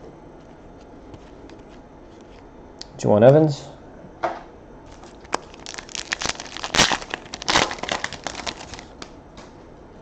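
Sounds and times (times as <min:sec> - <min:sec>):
foil wrapper tearing and crinkling: 0:04.9 - 0:09.1.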